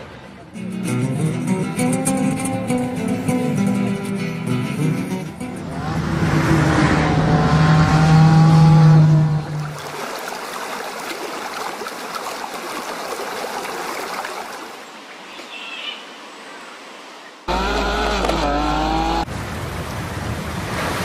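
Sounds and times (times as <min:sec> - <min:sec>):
road noise: 0:00.0 - 0:21.0
car engine at speed: 0:05.4 - 0:09.8, 0:17.5 - 0:19.6
mountain stream rushing: 0:05.6 - 0:15.3.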